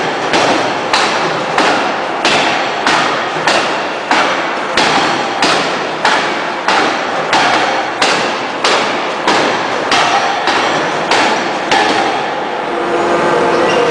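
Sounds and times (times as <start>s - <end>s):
forging hammer striking steel: 0.0s - 12.5s.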